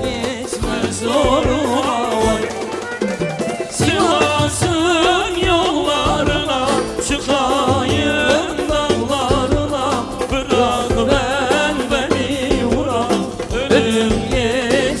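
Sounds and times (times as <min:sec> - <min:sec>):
live folk band with drums: 0:00.0 - 0:15.0
men singing into microphones: 0:00.0 - 0:15.0.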